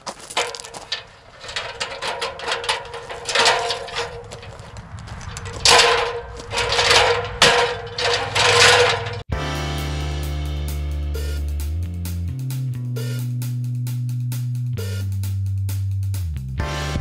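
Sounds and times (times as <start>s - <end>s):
metal ladder clanking and scraping: 0.0s - 9.3s.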